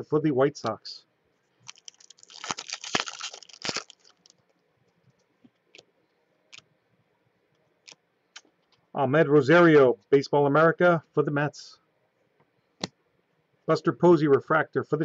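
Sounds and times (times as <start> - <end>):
foil wrapper crinkling: 1.6 - 4.6.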